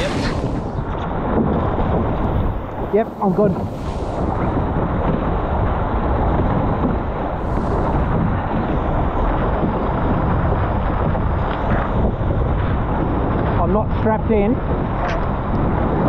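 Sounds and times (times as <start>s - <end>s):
water rushing along hull: 0.0s - 16.0s
wind buffeting microphone: 0.0s - 16.0s.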